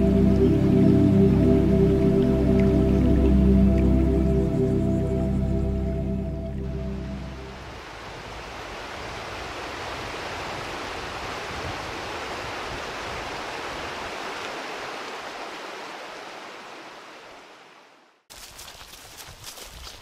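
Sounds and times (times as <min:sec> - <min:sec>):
music track: 0:00.0 - 0:07.8
river rushing over rapids: 0:06.8 - 0:18.1.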